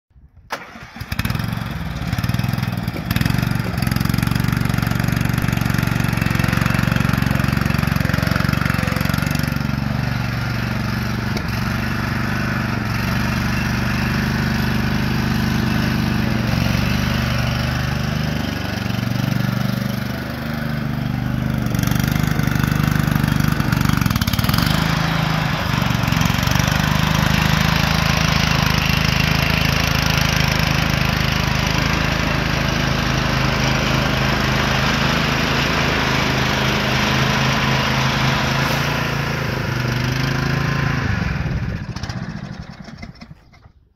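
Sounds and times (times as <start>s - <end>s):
riding lawn mower engine running: 0.2s - 43.9s.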